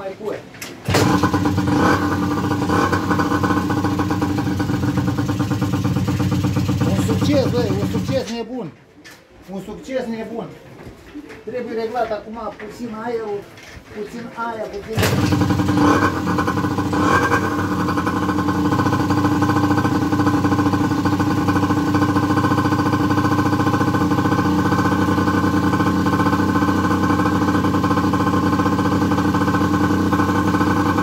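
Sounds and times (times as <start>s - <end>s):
two-stroke engine running: 0.8s - 8.3s, 15.0s - 31.0s.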